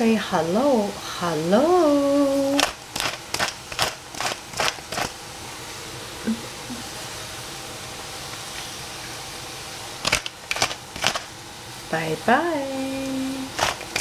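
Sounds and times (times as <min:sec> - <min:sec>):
steady background hiss: 0:00.0 - 0:14.0
spice grinder crackling: 0:02.4 - 0:05.3, 0:08.2 - 0:11.9, 0:12.6 - 0:14.0.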